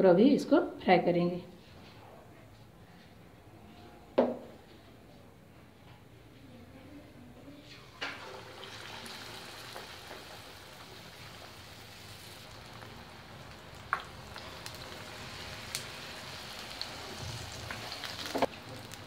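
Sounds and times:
food deep-frying in oil: 0:07.8 - 0:19.0.

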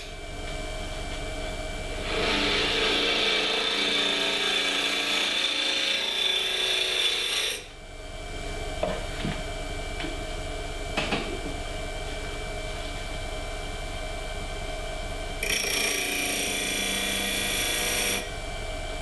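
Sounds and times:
turning tool scraping wood: 0:02.0 - 0:07.6
lathe humming: 0:02.0 - 0:07.7, 0:15.4 - 0:18.3.

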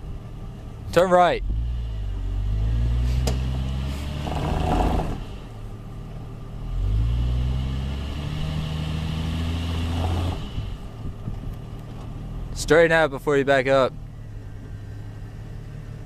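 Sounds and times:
vehicle engine revving under load: 0:01.4 - 0:12.7.

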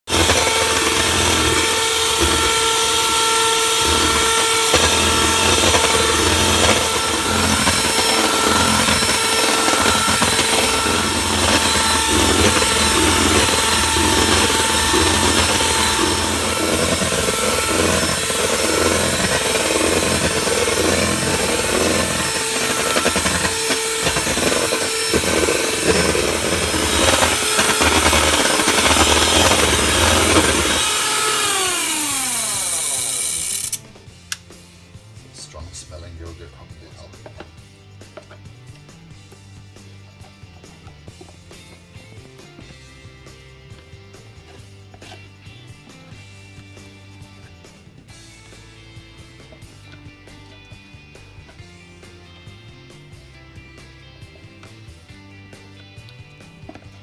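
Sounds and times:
electric hand mixer whisking: 0:00.0 - 0:33.8.

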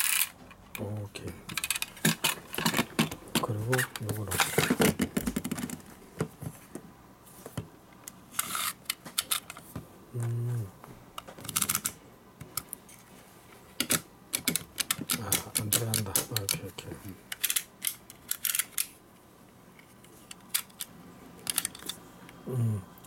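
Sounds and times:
person humming: 0:10.1 - 0:10.8, 0:22.4 - 0:23.0.

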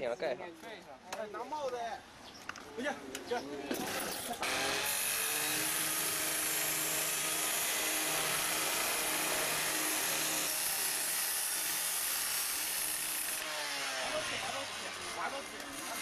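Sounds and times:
electric power tool running: 0:03.8 - 0:16.0.

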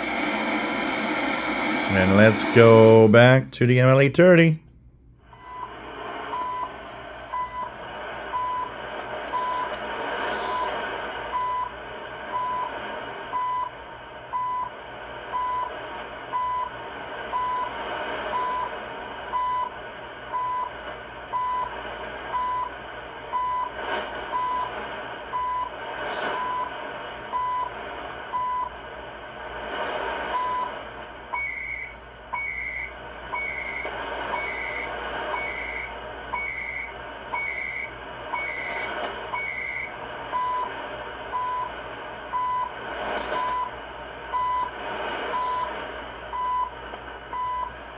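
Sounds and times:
radio static: 0:00.0 - 0:04.6, 0:05.4 - 0:47.9
short radio beeps: 0:01.8 - 0:04.6, 0:05.3 - 0:08.7, 0:10.3 - 0:12.7, 0:13.3 - 0:14.7, 0:31.4 - 0:41.7, 0:44.4 - 0:47.9
high-pitched data-tone bursts: 0:31.4 - 0:40.7.

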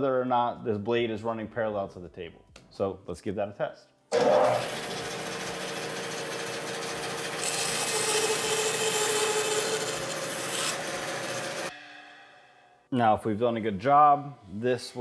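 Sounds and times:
bandsaw sawing wood: 0:04.1 - 0:11.7.

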